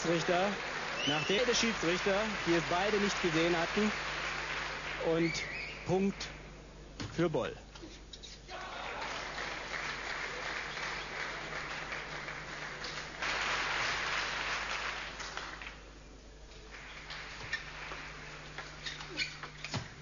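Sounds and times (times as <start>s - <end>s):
crowd applauding: 0.0s - 6.4s, 8.5s - 15.8s, 16.7s - 18.8s.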